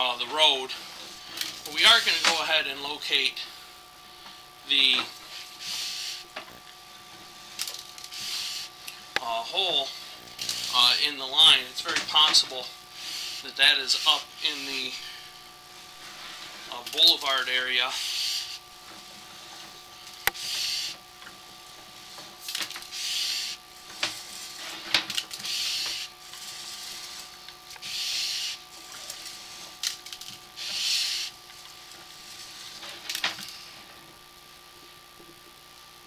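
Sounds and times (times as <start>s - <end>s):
cable hissing swish: 20.4s - 21.0s, 30.6s - 31.4s.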